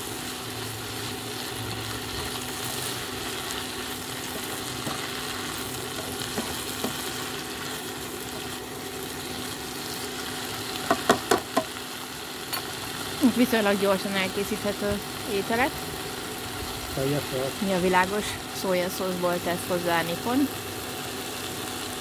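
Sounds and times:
greens sizzling in hot oil: 0.0 - 22.0
spatula tossing greens in pan: 2.0 - 8.6.

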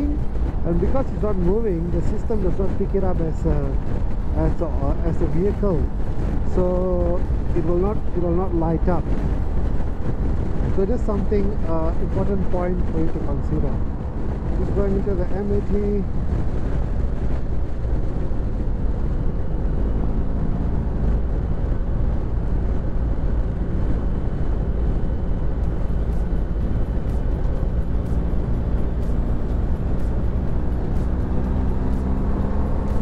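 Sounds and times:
wind and road noise: 0.0 - 33.0.

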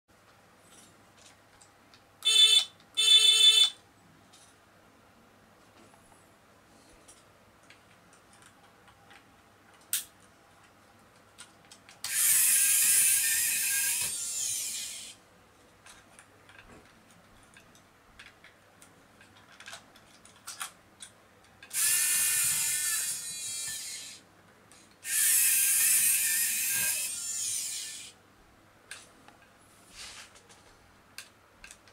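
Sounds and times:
small electric motor whirring: 12.1 - 15.2, 21.7 - 24.2, 25.0 - 28.2.

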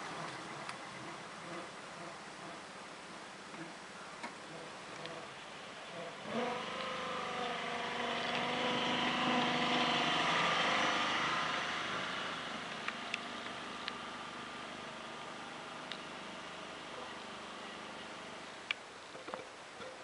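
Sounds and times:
miniature locomotive engine passing: 4.5 - 18.5.

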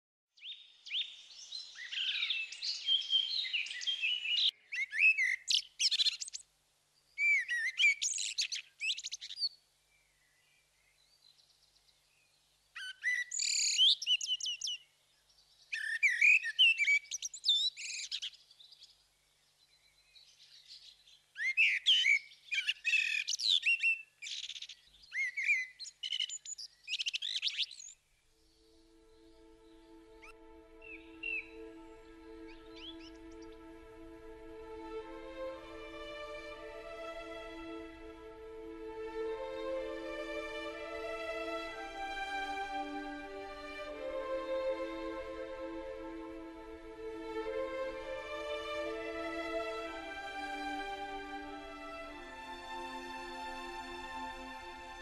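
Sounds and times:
songbird warbling: 21.4 - 33.7.

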